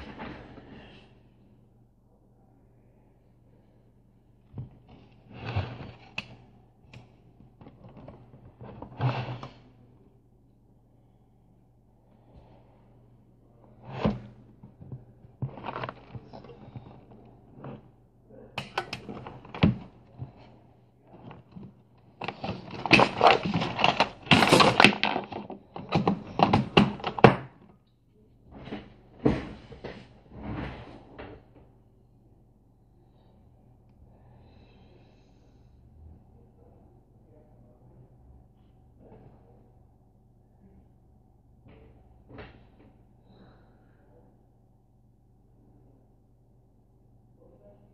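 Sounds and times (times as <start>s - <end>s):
handling noise thunks and rustles: 18.6s - 27.7s, 28.5s - 31.6s.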